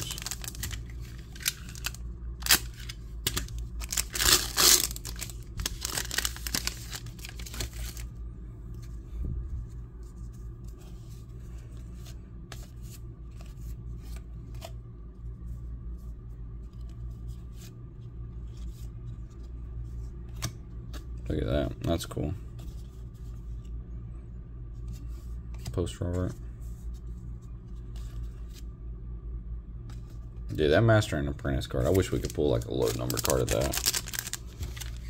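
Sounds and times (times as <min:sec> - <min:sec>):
cards clicking: 0:00.0 - 0:08.0
wrapper tearing and crinkling: 0:00.0 - 0:08.1, 0:31.9 - 0:35.0
steady low hum: 0:00.0 - 0:35.0.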